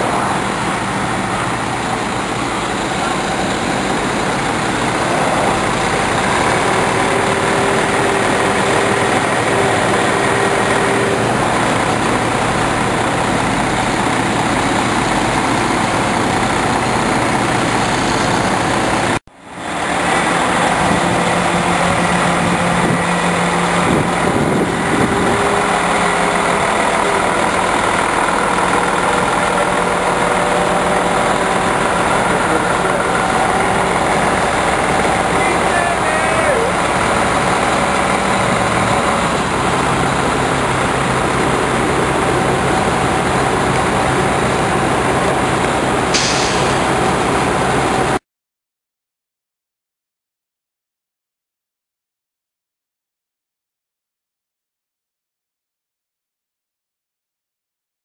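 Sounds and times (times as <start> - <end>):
truck diesel engine running: 0.0 - 48.2.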